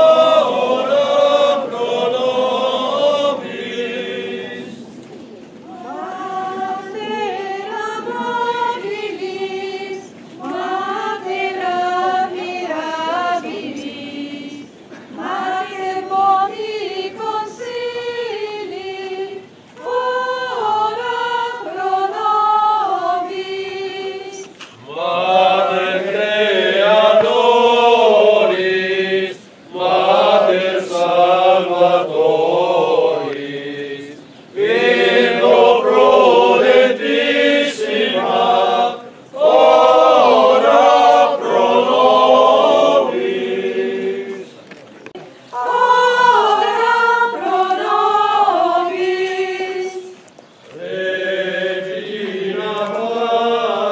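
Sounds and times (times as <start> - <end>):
people singing a hymn: 0.0 - 53.9.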